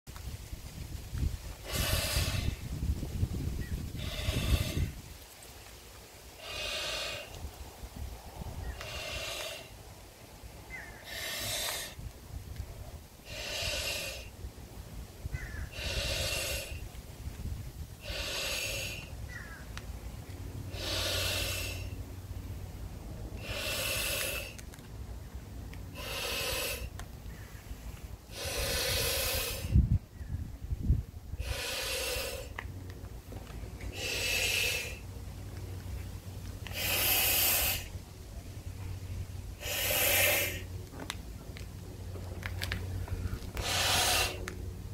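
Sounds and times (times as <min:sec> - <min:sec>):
man blowing up balloon: 0:01.6 - 0:02.7, 0:04.0 - 0:05.0, 0:06.4 - 0:07.3, 0:08.8 - 0:09.7, 0:11.0 - 0:12.0, 0:13.2 - 0:14.3, 0:15.7 - 0:16.8, 0:18.0 - 0:19.1, 0:20.7 - 0:21.9, 0:23.4 - 0:24.6, 0:25.9 - 0:26.9, 0:28.3 - 0:29.8, 0:31.4 - 0:32.6, 0:33.9 - 0:35.0, 0:36.7 - 0:37.9, 0:39.6 - 0:40.7, 0:43.6 - 0:44.4.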